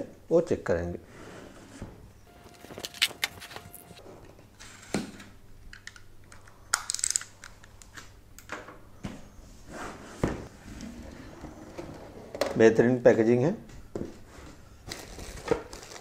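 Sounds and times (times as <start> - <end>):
packaging rustling: 2.4 - 4.0, 14.9 - 16.0.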